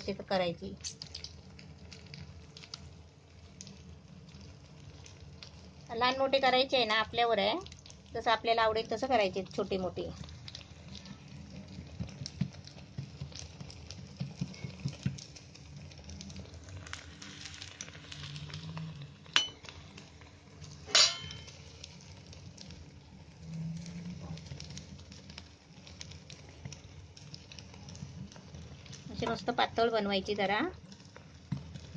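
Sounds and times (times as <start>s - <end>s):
hot oil sizzling: 0.0s - 31.9s
wet hands patting dough: 9.6s - 16.3s
low steady hum: 15.6s - 31.9s.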